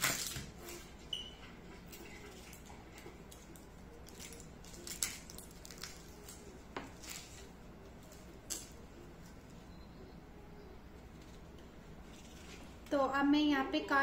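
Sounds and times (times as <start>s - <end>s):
knife peeling onion skin: 0.0s - 1.3s.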